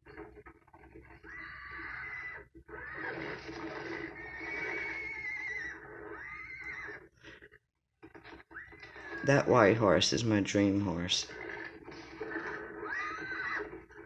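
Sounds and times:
horses neighing and squealing: 0:00.0 - 0:07.5, 0:08.1 - 0:10.0, 0:11.2 - 0:14.0.

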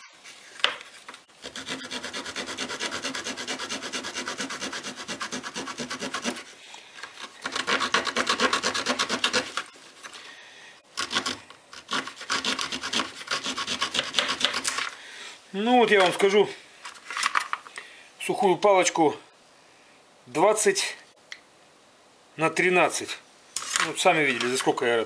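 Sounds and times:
saw cutting wooden stick: 0:01.4 - 0:06.6, 0:07.2 - 0:09.7, 0:11.0 - 0:14.8.

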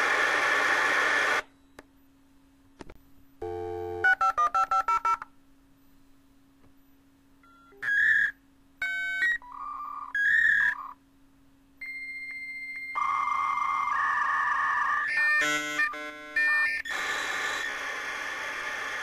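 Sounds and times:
modem data hiss: 0:00.0 - 0:01.8, 0:11.8 - 0:19.0
touch-tone dialing beeps: 0:03.4 - 0:05.2.

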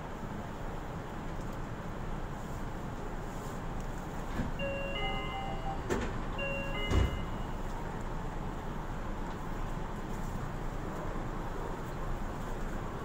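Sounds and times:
train background noise: 0:02.1 - 0:13.0
short electronic chime: 0:04.6 - 0:07.7
doors shutting with a thud: 0:05.8 - 0:07.4.

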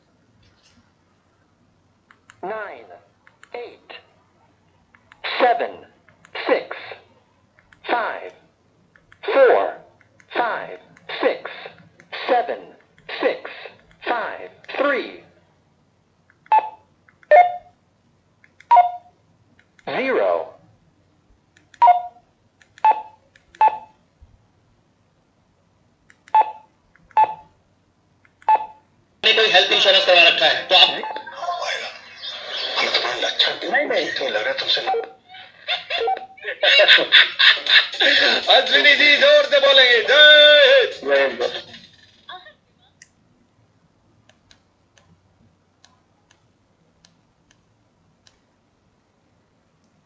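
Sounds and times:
keypad tones: 0:16.5 - 0:17.7, 0:18.6 - 0:19.2, 0:21.8 - 0:22.2, 0:22.8 - 0:24.0, 0:26.3 - 0:27.5.

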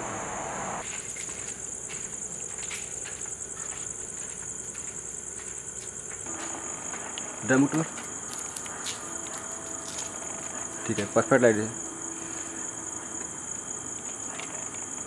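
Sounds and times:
crickets chirping: 0:00.8 - 0:15.0.

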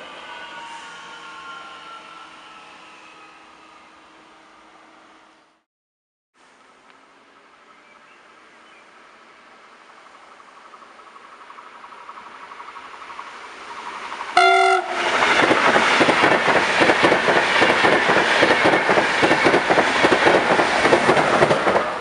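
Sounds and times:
train passing at speed: 0:00.0 - 0:05.6, 0:07.1 - 0:22.0
wheels clattering on rails: 0:10.7 - 0:22.0
train horn blast: 0:14.4 - 0:15.4.

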